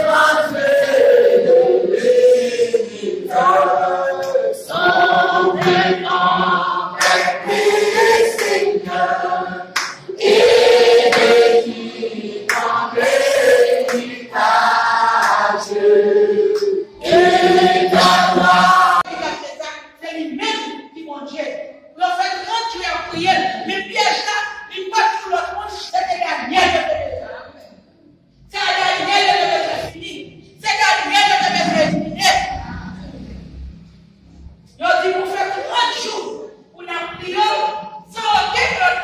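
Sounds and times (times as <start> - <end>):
mixed choir singing a hymn: 0.0 - 19.6, 28.5 - 33.3, 34.8 - 39.0.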